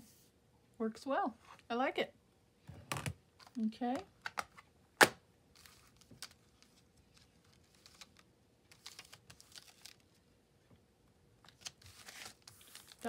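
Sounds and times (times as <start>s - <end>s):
plastic packaging rustling: 5.5s - 10.2s, 11.4s - 13.0s.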